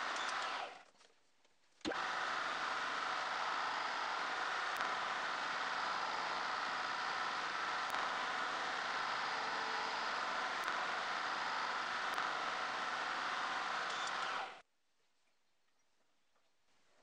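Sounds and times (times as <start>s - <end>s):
milling machine running: 0.0s - 0.8s, 1.9s - 14.6s.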